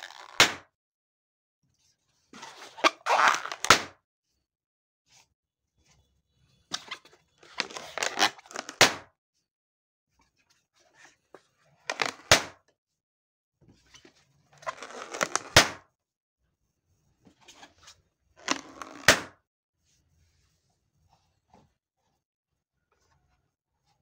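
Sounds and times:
balloon popping snap: 0:00.2 - 0:00.7, 0:03.1 - 0:04.0, 0:08.6 - 0:09.1, 0:11.9 - 0:12.6, 0:15.2 - 0:15.8, 0:19.0 - 0:19.4
balloons rubbing and squeaking: 0:02.4 - 0:03.7, 0:07.4 - 0:08.8, 0:14.6 - 0:15.6, 0:18.4 - 0:19.1.

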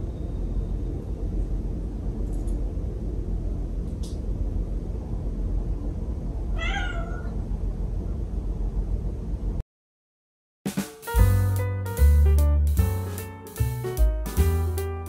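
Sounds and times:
low background rumble: 0:00.0 - 0:09.6
cat meowing: 0:06.5 - 0:07.4.

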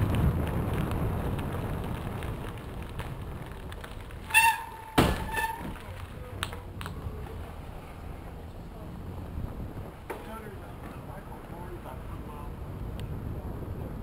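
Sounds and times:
bicycle tyres rumbling over gravel: 0:00.0 - 0:14.0
short high squeak: 0:04.3 - 0:05.7.

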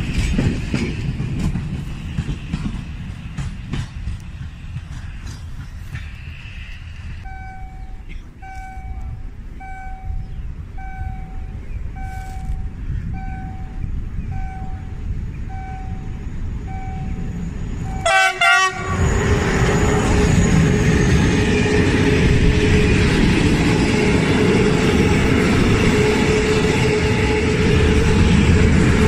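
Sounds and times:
diesel locomotive rumble: 0:00.0 - 0:29.0
level crossing warning tones: 0:07.2 - 0:18.6
train horn toots: 0:17.9 - 0:19.8.

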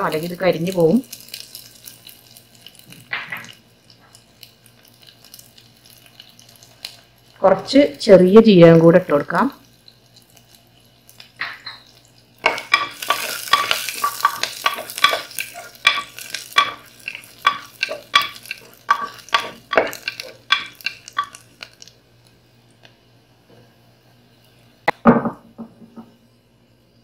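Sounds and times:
food sizzling in oil: 0:00.0 - 0:22.9
spatula tapping and scraping metal pot: 0:12.4 - 0:21.4.

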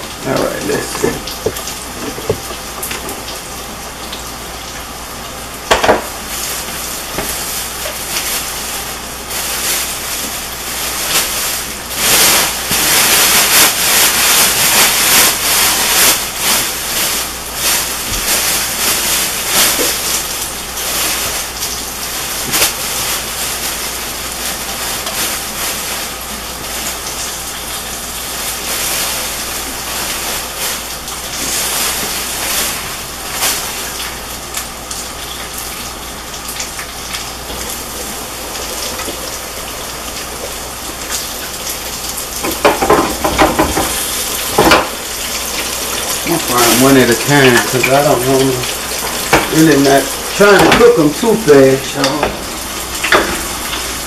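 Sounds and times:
hot oil sizzling in a deep fryer: 0:00.0 - 0:54.0.

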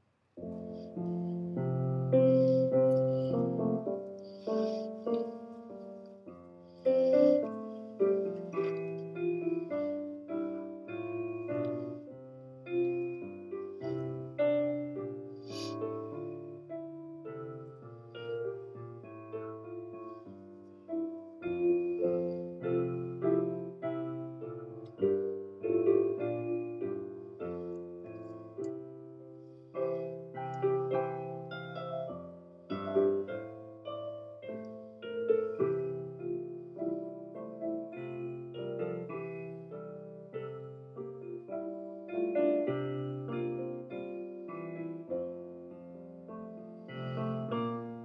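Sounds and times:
slow solo piano piece: 0:00.0 - 0:48.0.

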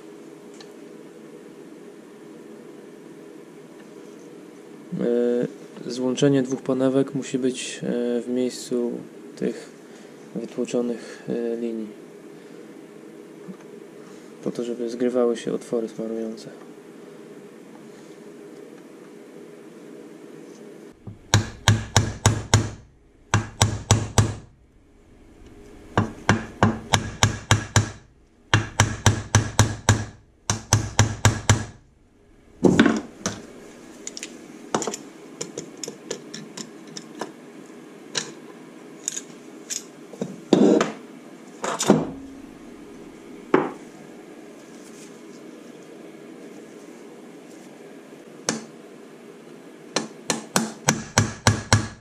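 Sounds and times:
hammer tapping on metal: 0:21.1 - 0:24.4, 0:26.0 - 0:31.8.

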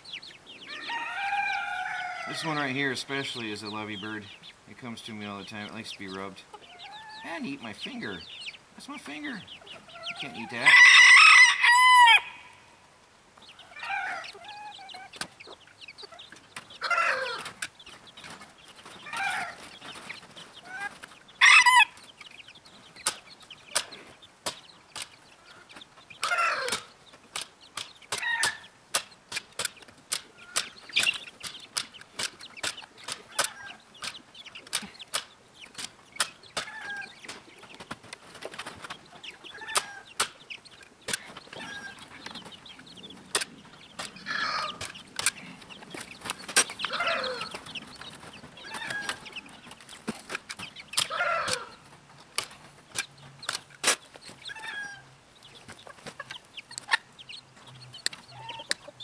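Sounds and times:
chickens calling and clucking: 0:00.0 - 0:59.0
chicken squawk: 0:09.6 - 0:12.8, 0:13.5 - 0:15.2, 0:16.8 - 0:17.6, 0:19.0 - 0:19.6, 0:20.6 - 0:22.0, 0:25.4 - 0:26.9, 0:41.6 - 0:42.2, 0:44.2 - 0:45.6, 0:46.8 - 0:47.7, 0:48.6 - 0:49.5, 0:51.0 - 0:51.9, 0:54.5 - 0:55.1, 0:58.3 - 0:59.0.

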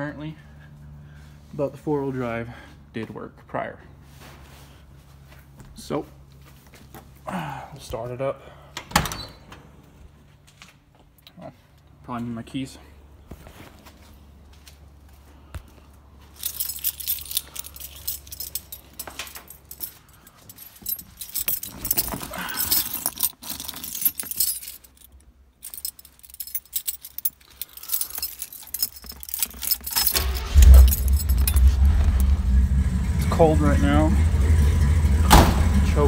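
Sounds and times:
keys jangling: 0:16.2 - 0:32.4
car engine starting and running: 0:28.8 - 0:36.0.

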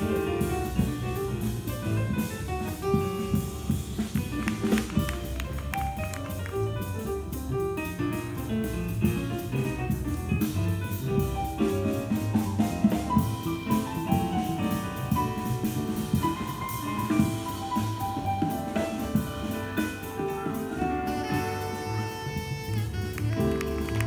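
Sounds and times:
bass: 0:00.0 - 0:24.0
piano: 0:00.0 - 0:24.0
tenor saxophone: 0:20.4 - 0:24.0.

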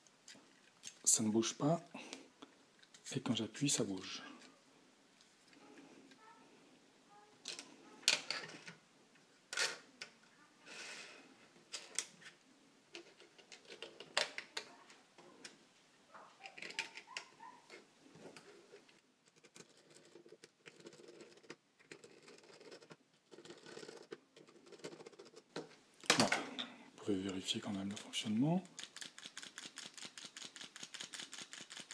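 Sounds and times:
plastic parts clicking and knocking: 0:07.4 - 0:08.8, 0:11.7 - 0:14.8, 0:16.4 - 0:26.7
plastic rubbing on plastic: 0:27.6 - 0:31.9.

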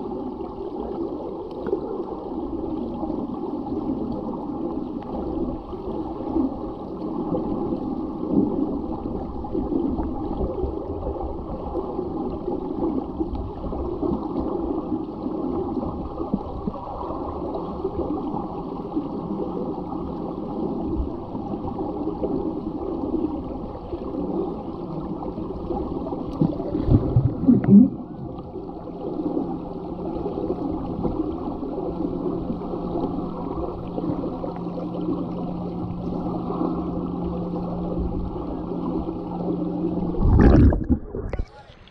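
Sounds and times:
low steady hum: 0:00.0 - 0:41.9
underwater water swirling: 0:00.0 - 0:41.9.

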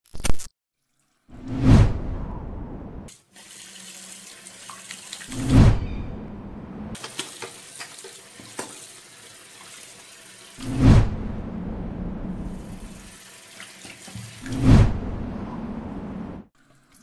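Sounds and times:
loud deep whoosh: 0:01.4 - 0:03.1, 0:10.6 - 0:12.7, 0:14.5 - 0:16.4
tap water running into basin: 0:03.1 - 0:05.4, 0:07.0 - 0:10.6, 0:12.7 - 0:14.6, 0:16.6 - 0:17.0.

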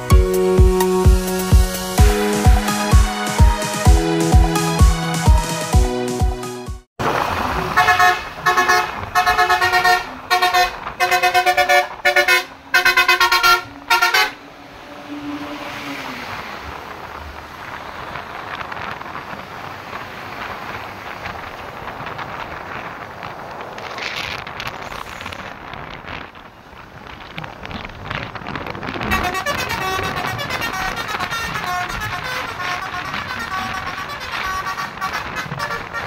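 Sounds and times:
coach engine and road noise: 0:00.0 - 0:36.0
loud multi-tone horn blasts: 0:07.7 - 0:15.9, 0:28.9 - 0:36.0.

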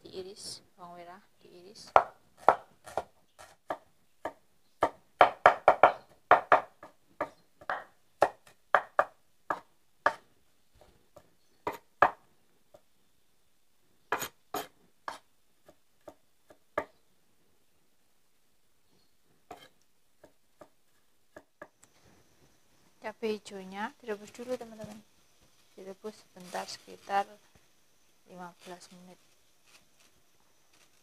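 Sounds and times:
knife chopping on wooden board: 0:01.9 - 0:10.2.

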